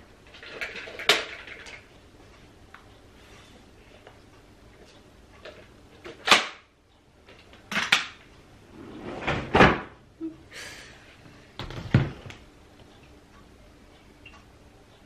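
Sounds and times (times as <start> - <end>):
hard plastic knocks and clatters: 11.6 - 12.4.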